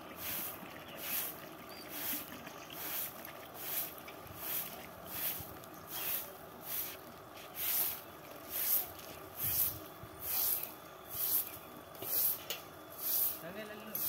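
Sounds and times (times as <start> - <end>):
broom swishing on earth: 2.9 - 11.5.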